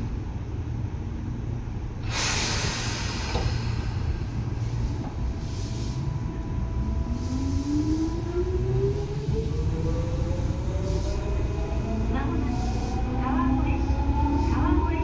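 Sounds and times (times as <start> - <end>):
train low rumble: 0.0 - 15.0
air hissing: 2.0 - 6.2
train motor whine rising: 6.2 - 15.0.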